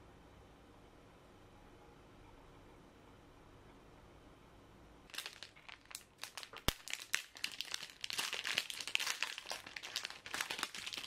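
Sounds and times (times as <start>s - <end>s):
plastic wrapper crinkling: 5.1s - 11.0s.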